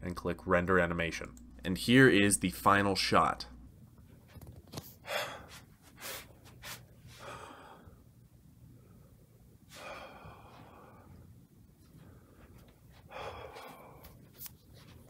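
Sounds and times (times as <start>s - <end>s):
person breathing faintly: 8.8s - 14.4s.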